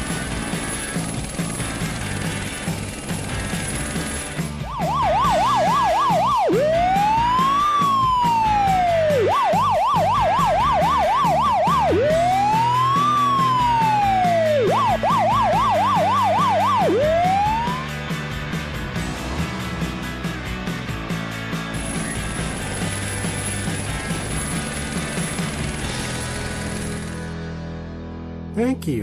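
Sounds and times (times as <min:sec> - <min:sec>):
music: 0:00.0 - 0:29.0
emergency siren yelp and wail: 0:04.6 - 0:18.0.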